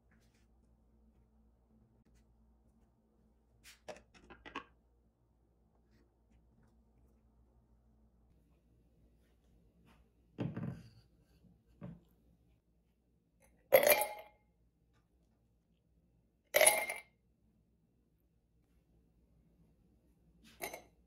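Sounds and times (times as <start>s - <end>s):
jug knocking on wooden table: 10.4s - 10.9s.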